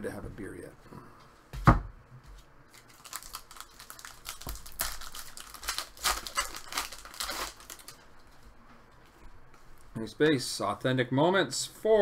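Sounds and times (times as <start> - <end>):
wrapper crinkling and crackling: 2.7 - 8.1.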